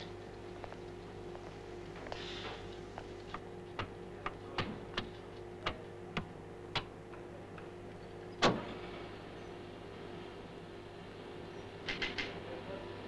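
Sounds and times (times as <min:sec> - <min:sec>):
steady hum: 0:00.0 - 0:13.0
switches and knobs clicking: 0:03.2 - 0:07.7, 0:11.8 - 0:12.4.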